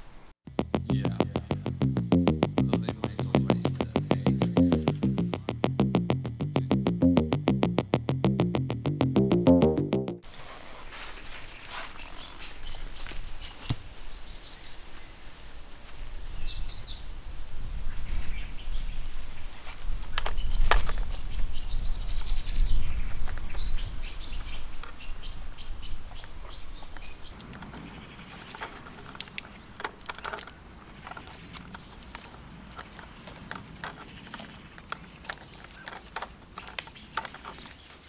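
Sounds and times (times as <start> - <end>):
deep rumble: 0.5 - 10.2
small birds chirping: 20.3 - 38.0
cable bundles clicking and rustling: 27.4 - 38.0.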